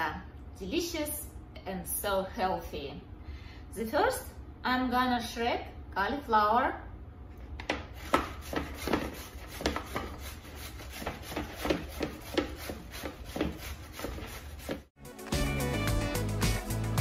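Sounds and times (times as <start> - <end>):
cauliflower scraping on grater: 8.0 - 14.9.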